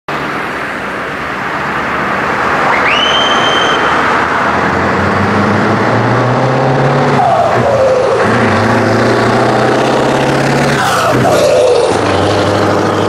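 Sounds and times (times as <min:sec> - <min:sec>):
diesel truck engine: 0:00.1 - 0:13.0
falling whistle: 0:02.6 - 0:04.0.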